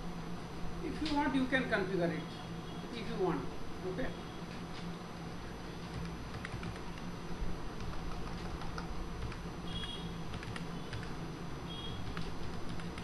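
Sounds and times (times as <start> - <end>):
keyboard keystrokes: 5.9 - 7.0, 7.8 - 11.1, 12.0 - 13.0.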